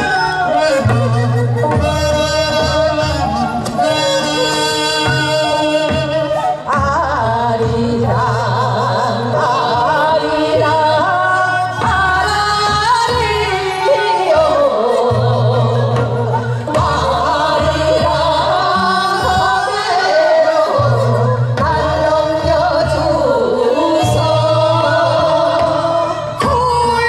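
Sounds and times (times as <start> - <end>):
women singing folk song: 0.0 - 27.0.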